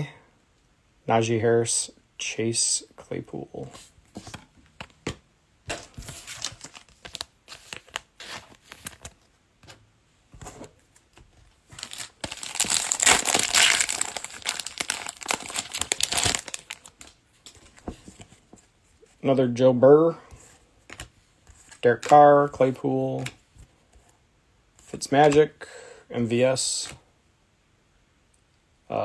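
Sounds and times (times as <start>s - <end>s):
foil wrapper crinkling and tearing: 11.7s - 17.2s.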